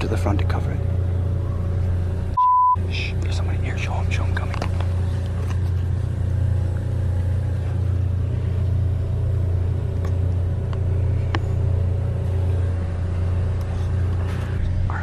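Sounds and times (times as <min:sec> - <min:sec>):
low mechanical hum: 0:00.0 - 0:15.0.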